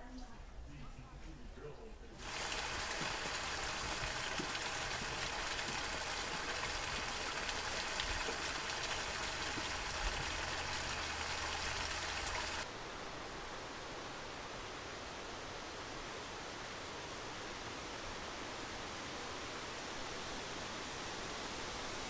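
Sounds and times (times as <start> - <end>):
water hissing: 2.2 - 12.6.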